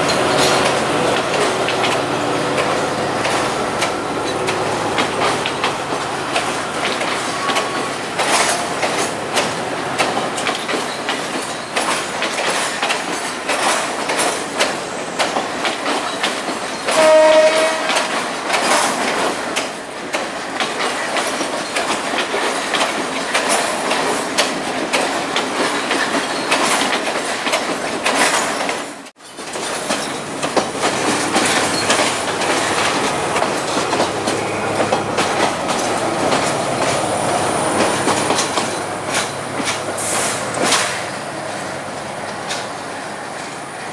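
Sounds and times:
train wheels clicking over rail joints: 0:00.0 - 0:43.9
train horn blast: 0:16.9 - 0:18.2.

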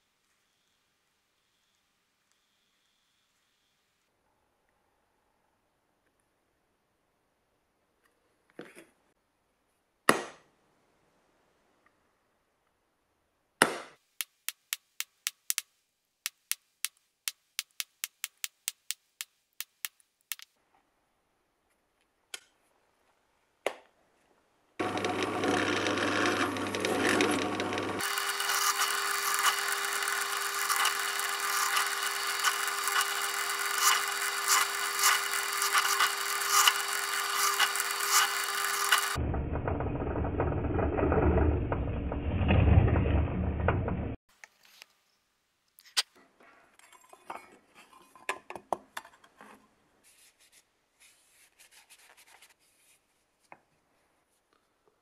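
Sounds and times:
drill press boring metal: 0:24.8 - 0:39.4.

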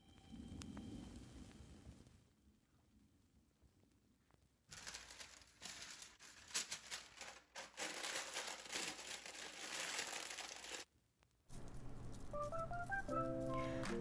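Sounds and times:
parchment paper crinkling: 0:04.7 - 0:10.9, 0:11.5 - 0:14.0.

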